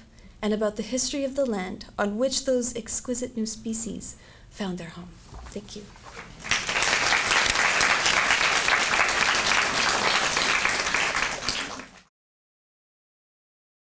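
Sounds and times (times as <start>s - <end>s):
audience applauding: 6.2s - 12.1s.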